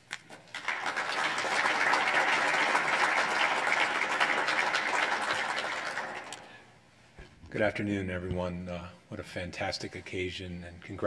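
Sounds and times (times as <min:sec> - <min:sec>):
audience applauding: 0:00.5 - 0:06.5.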